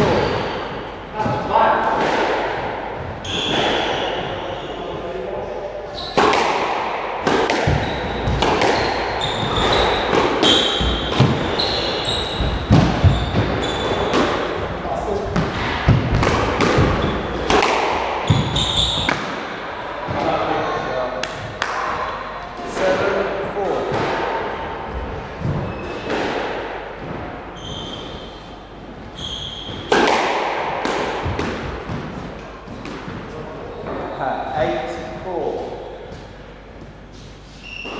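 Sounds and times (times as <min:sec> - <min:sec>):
racket hitting squash ball: 0:00.0 - 0:05.1, 0:05.9 - 0:20.4, 0:21.2 - 0:34.0
squash ball cracks: 0:06.2 - 0:11.5, 0:15.4 - 0:18.4, 0:21.2 - 0:22.0, 0:29.9 - 0:32.1
shoes squeaking on wooden floor: 0:07.7 - 0:14.2, 0:18.2 - 0:19.2, 0:25.5 - 0:26.1, 0:27.5 - 0:28.4, 0:29.1 - 0:30.0.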